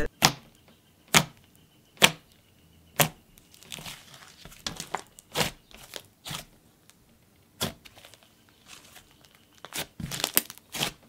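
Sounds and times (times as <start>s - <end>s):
slime squishing: 3.0s - 11.0s.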